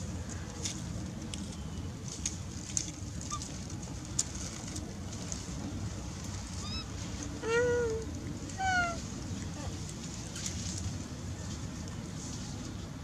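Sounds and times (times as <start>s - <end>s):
low outdoor rumble: 0.0s - 13.0s
baby monkey squeaking: 6.6s - 8.0s, 8.6s - 9.0s.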